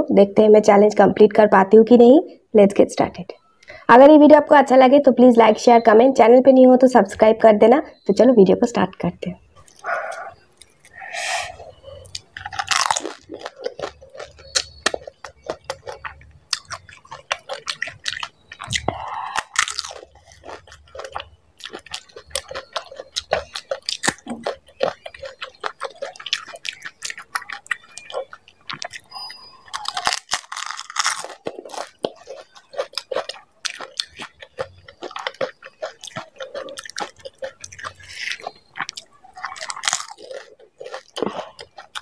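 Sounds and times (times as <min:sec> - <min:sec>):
crunchy chewing: 0:09.5 - 0:42.0.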